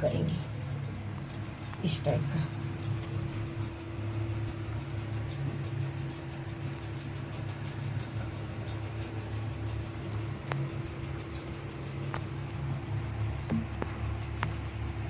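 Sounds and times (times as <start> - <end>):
faint even ticking: 0.0 - 10.7
low machine hum: 0.0 - 15.0.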